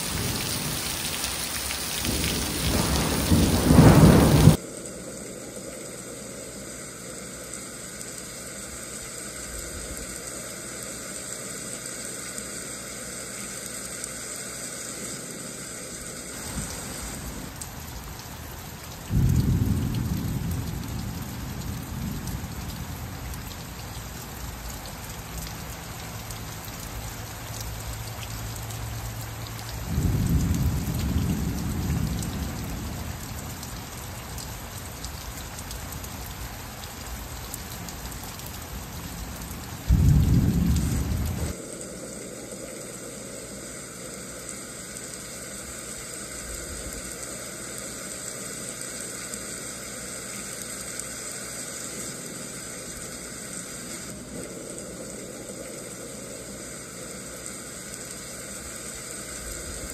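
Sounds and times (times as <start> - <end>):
low rolls of thunder: 0.0 - 4.6, 16.2 - 18.3, 18.9 - 24.3, 29.8 - 34.6, 39.0 - 41.6
rain falling: 0.0 - 59.9.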